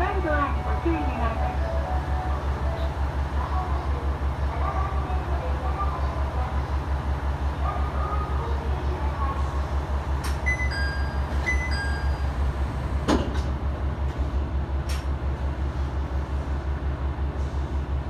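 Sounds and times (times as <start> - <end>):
railcar engine idling: 0.0 - 18.0.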